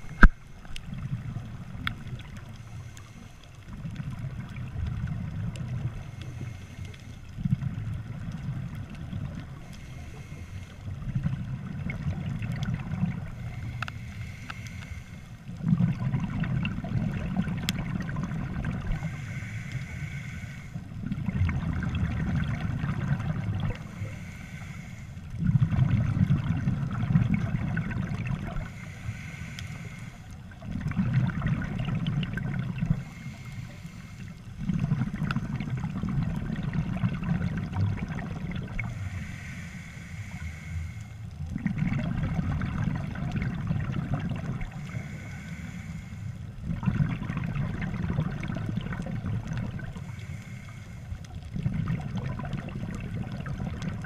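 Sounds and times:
hissing inhale through regulator: 0:00.0 - 0:08.3, 0:09.2 - 0:36.0, 0:37.0 - 0:54.0
gurgling exhaled bubbles: 0:07.4 - 0:14.4, 0:15.5 - 0:19.4, 0:20.9 - 0:24.2, 0:25.4 - 0:28.8, 0:30.5 - 0:33.5, 0:34.6 - 0:39.0, 0:41.4 - 0:45.7, 0:46.5 - 0:50.5, 0:51.3 - 0:54.0.

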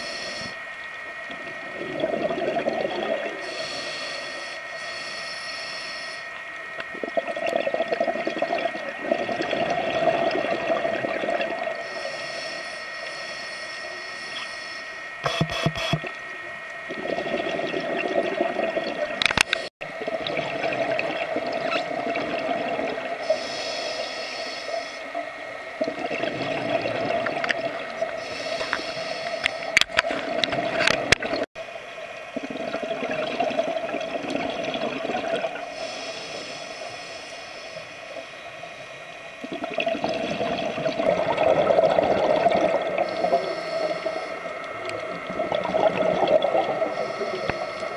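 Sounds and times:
scuba regulator hiss: 0:00.0 - 0:00.6, 0:03.4 - 0:06.3, 0:11.8 - 0:15.0, 0:23.2 - 0:25.1, 0:28.2 - 0:29.8, 0:35.7 - 0:38.2, 0:43.0 - 0:44.5, 0:46.8 - 0:47.9
steady hum: 0:00.0 - 0:47.9
gurgling exhaled bubbles: 0:01.3 - 0:03.5, 0:06.9 - 0:11.8, 0:16.9 - 0:23.4, 0:25.8 - 0:28.2, 0:32.3 - 0:36.1, 0:39.4 - 0:47.7.

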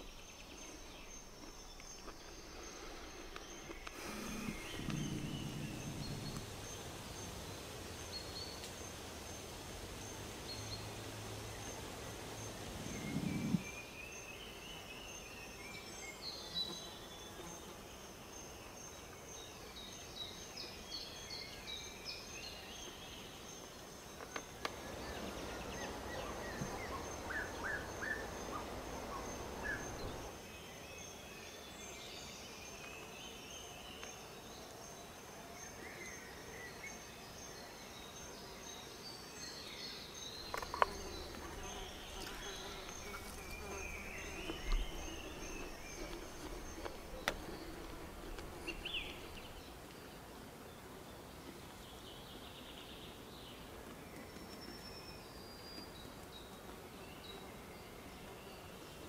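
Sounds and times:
birds chirping and trilling: 0:00.0 - 0:08.6, 0:12.4 - 0:14.6, 0:24.6 - 0:30.3, 0:39.9 - 0:49.8
low rumbling noise: 0:02.4 - 0:08.0, 0:12.3 - 0:13.7, 0:24.7 - 0:30.3.

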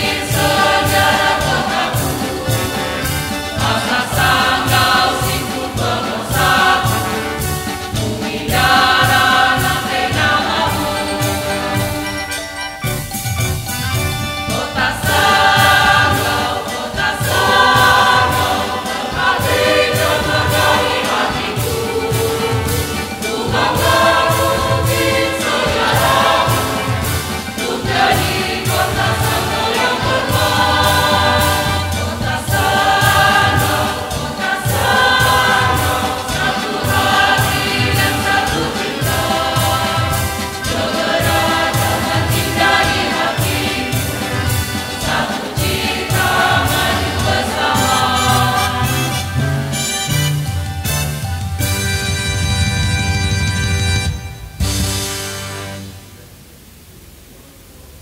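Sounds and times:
mixed choir singing: 0:00.0 - 0:12.6, 0:14.0 - 0:49.8
steady beat: 0:00.0 - 0:53.8.

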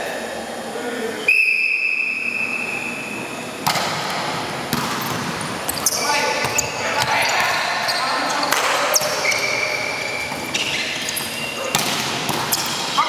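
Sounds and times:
referee's whistle blast: 0:01.3 - 0:03.2
court noise: 0:01.3 - 0:13.0.

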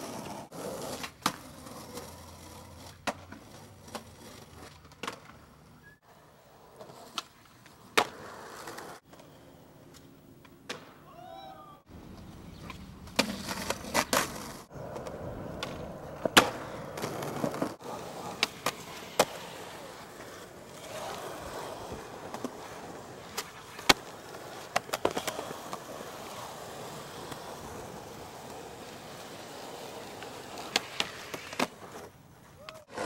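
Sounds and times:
skateboard wheels rolling on concrete: 0:00.0 - 0:33.0
skateboard tail clacks: 0:12.1 - 0:21.2, 0:22.0 - 0:26.4, 0:29.9 - 0:33.0.

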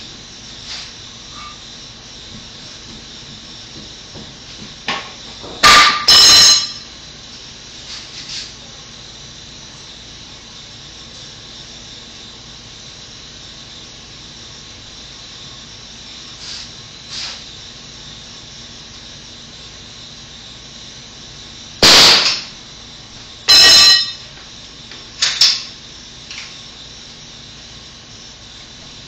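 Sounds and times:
fastening tool shots into wood: 0:21.8 - 0:22.5.

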